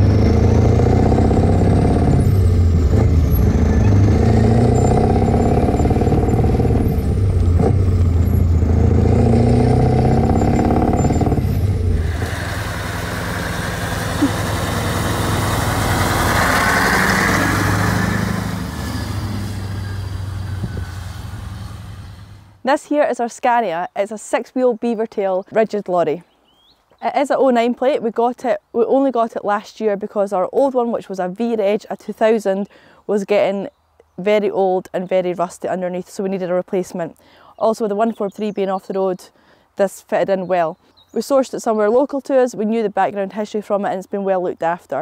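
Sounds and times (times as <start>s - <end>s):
diesel lorry engine pulling hard: 0.0s - 22.6s
road noise: 0.0s - 23.1s.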